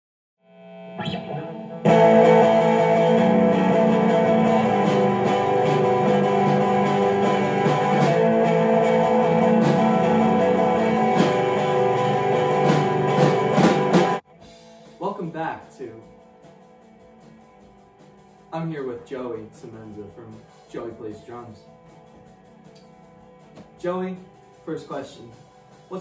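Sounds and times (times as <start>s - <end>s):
electric guitar: 0.6s - 14.7s
drum kit: 1.0s - 26.0s.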